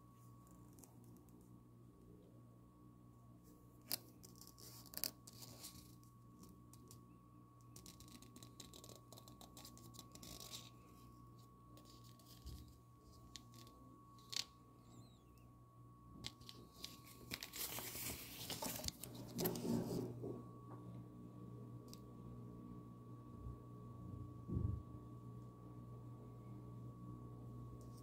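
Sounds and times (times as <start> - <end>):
paper rustling and crinkling: 3.9 - 6.0, 7.8 - 10.8, 11.8 - 14.5, 16.3 - 20.2.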